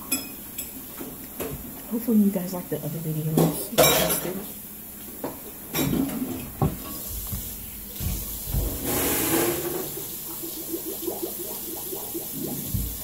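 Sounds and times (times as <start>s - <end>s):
dishes clinking: 0.0s - 0.8s, 3.3s - 4.5s, 5.2s - 8.1s
tap running into sink: 5.2s - 10.3s, 12.5s - 13.0s.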